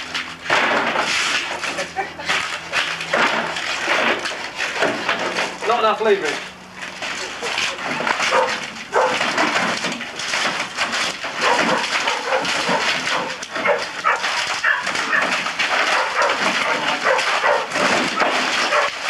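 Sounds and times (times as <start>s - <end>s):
splintering wood cracking: 0.0s - 19.0s
wooden timbers creaking and squealing: 0.0s - 19.0s.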